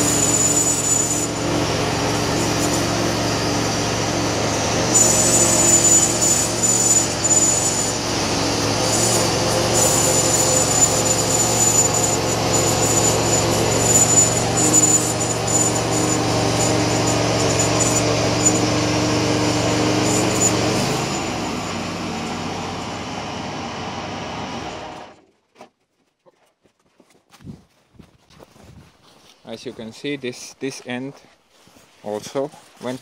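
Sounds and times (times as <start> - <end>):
bandsaw mill sawing log: 0.0 - 25.2, 32.0 - 33.0
high thin whine: 0.0 - 25.2.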